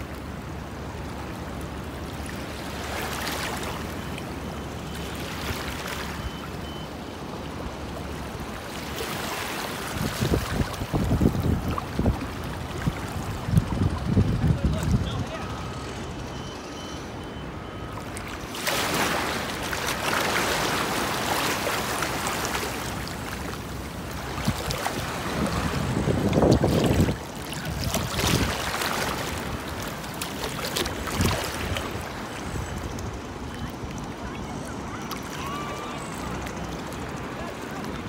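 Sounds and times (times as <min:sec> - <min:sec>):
shallow sea water washing: 0:00.0 - 0:14.4, 0:17.9 - 0:38.0
wind on microphone: 0:09.9 - 0:15.3, 0:24.4 - 0:28.7.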